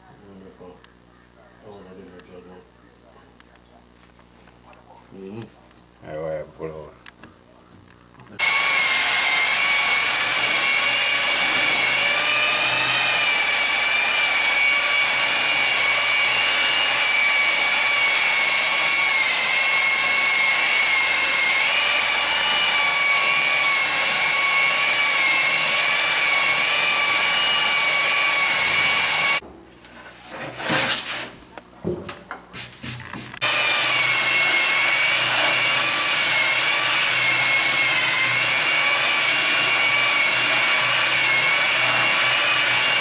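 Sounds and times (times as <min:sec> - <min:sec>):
belt sander on wood: 0:08.4 - 0:29.4, 0:33.3 - 0:43.0.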